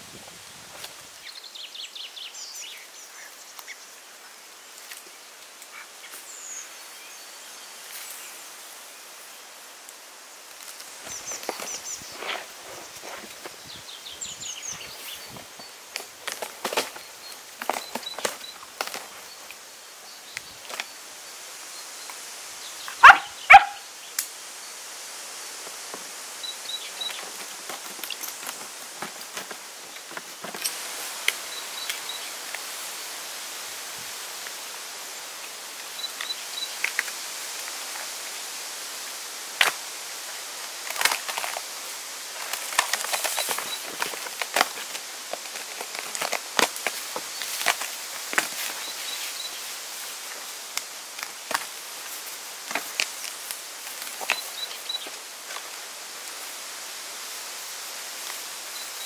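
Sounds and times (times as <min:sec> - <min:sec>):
steady outdoor hiss: 0:00.0 - 0:59.0.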